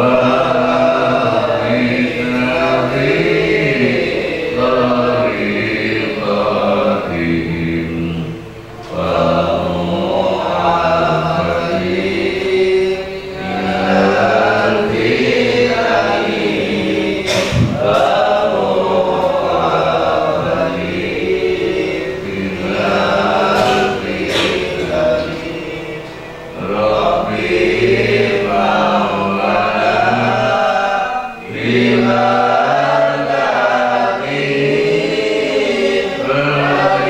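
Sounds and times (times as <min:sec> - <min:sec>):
thump: 0:17.3 - 0:18.1.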